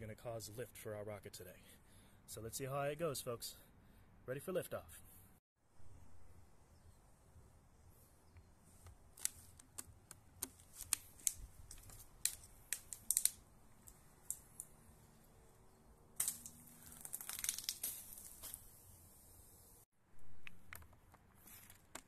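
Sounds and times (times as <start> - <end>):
hissing spray with crackling: 16.2 - 19.8.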